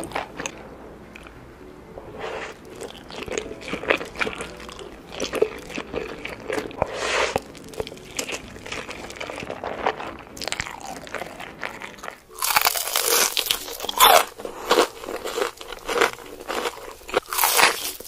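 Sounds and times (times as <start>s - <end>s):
chewing and slurping noodles: 2.2s - 18.0s
crunching bites of fried chicken: 7.3s - 18.0s.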